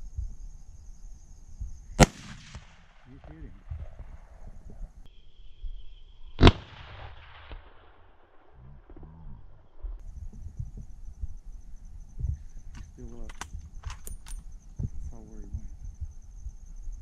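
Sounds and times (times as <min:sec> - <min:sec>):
high insect buzz: 0:00.0 - 0:02.0, 0:10.0 - 0:17.0
rifle shots echoing: 0:02.0 - 0:04.1, 0:06.4 - 0:07.8.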